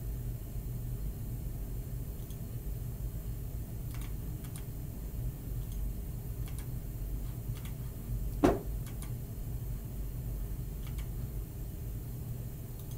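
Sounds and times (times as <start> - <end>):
steady low hum: 0.0 - 12.9
short thump: 8.4 - 8.7.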